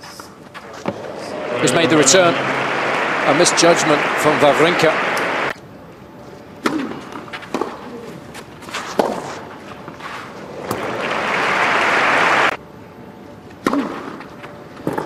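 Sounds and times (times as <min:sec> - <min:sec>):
crowd applause: 0:00.9 - 0:05.5, 0:10.5 - 0:12.6.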